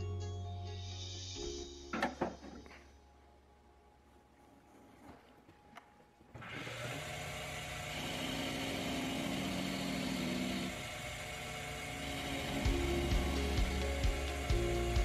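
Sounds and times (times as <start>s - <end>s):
chisel cutting spinning wood: 6.4s - 15.0s
wood lathe motor whine: 6.4s - 15.0s.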